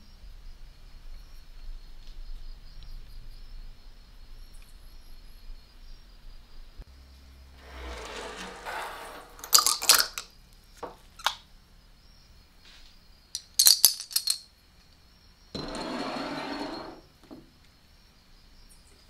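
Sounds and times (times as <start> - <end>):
coins scraping on wood: 7.6 - 10.2, 15.6 - 17.1
coins clinking into glass jar: 9.4 - 10.2, 13.4 - 14.5.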